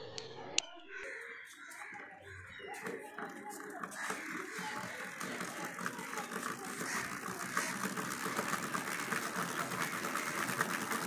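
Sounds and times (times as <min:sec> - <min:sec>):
starter motor whirring: 0:02.3 - 0:11.0.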